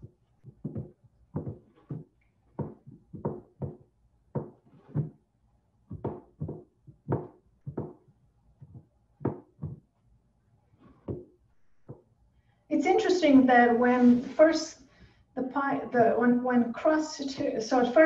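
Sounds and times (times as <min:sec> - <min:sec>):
soft knocks pressing dough: 0:00.0 - 0:05.2, 0:05.9 - 0:09.9, 0:11.0 - 0:12.1.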